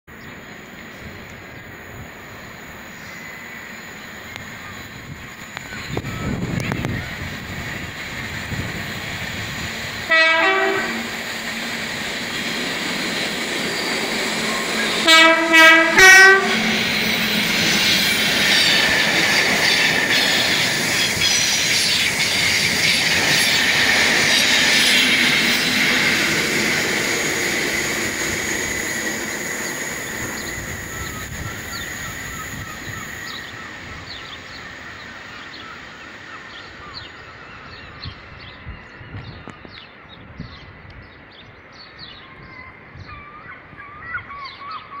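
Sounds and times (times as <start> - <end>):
train wheels rumbling and clattering: 4.1 - 35.2
two-tone locomotive horn: 10.0 - 11.3, 14.5 - 16.8.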